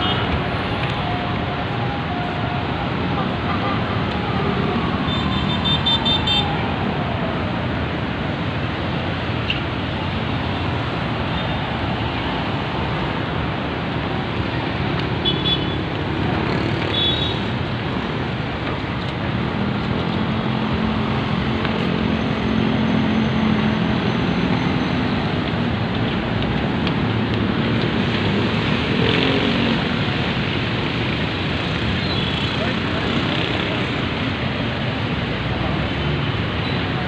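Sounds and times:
road traffic noise: 0.0 - 37.0.

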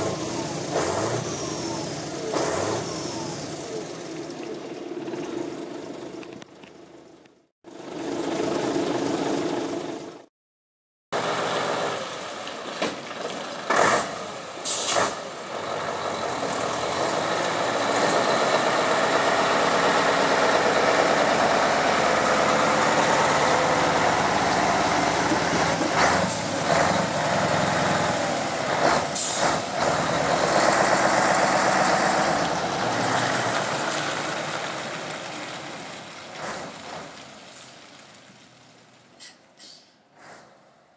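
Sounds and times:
truck diesel engine passing: 0.0 - 7.0, 7.7 - 10.3, 11.2 - 40.9
air brake hisses: 14.6 - 15.2, 29.2 - 29.6, 39.2 - 40.8.

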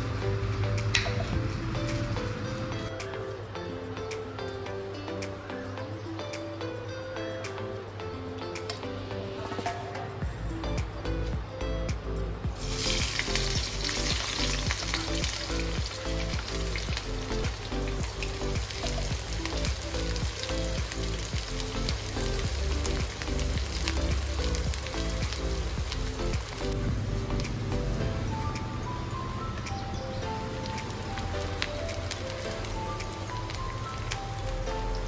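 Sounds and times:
onions sizzling in hot oil: 12.6 - 26.8, 30.5 - 35.0.

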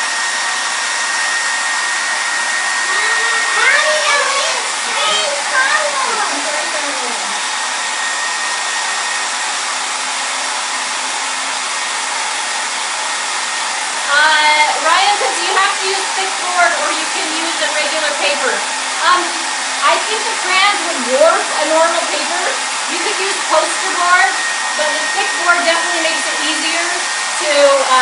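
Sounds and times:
hair dryer running: 0.0 - 28.0
people talking: 2.8 - 7.4, 14.1 - 28.0.

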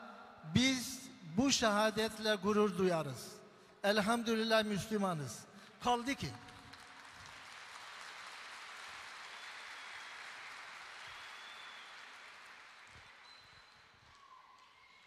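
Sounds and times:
audience applauding: 6.5 - 15.0.

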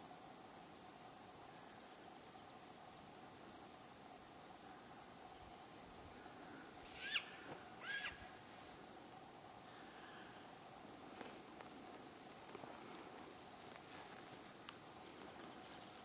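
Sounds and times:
owl giving harsh calls: 6.8 - 8.4.

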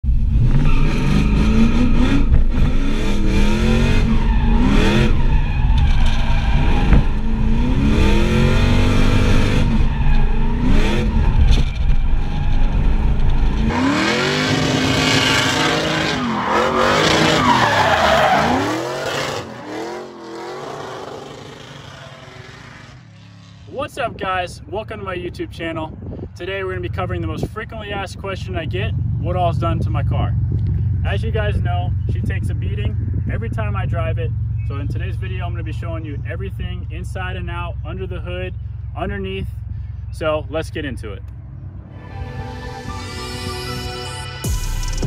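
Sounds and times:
car engine revving: 0.0 - 23.7
tires squealing: 0.4 - 23.7.

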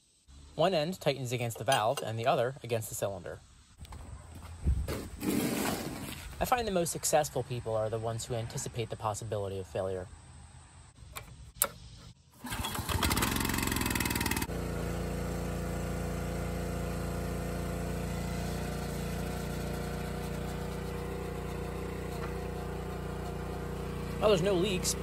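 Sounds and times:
click: 11.1 - 11.8
small engine revving and running: 12.4 - 25.0.

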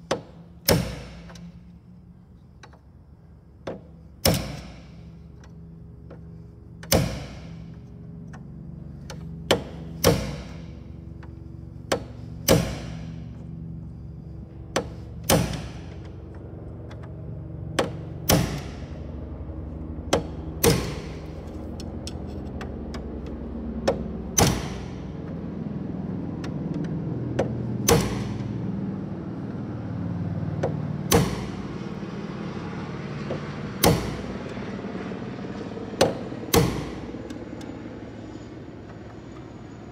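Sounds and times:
steady low hum: 0.0 - 39.9
sharp metallic clicks of hand tool: 3.6 - 5.6, 20.1 - 25.0.

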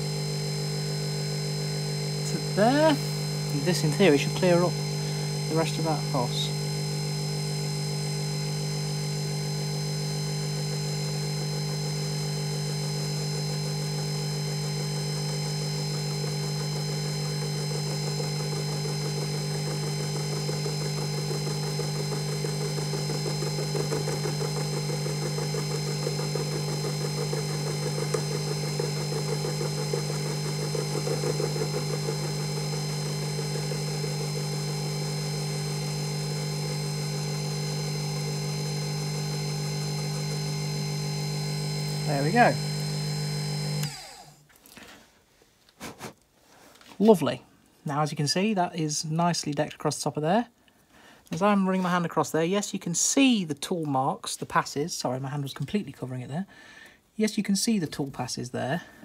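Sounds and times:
mill motor hum and whine: 0.0 - 44.5.

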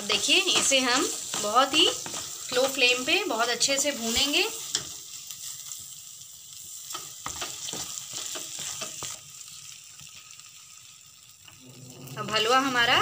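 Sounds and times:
spatula scraping a pan: 0.0 - 5.8, 6.8 - 9.7
mixture sizzling in oil: 0.0 - 13.0.

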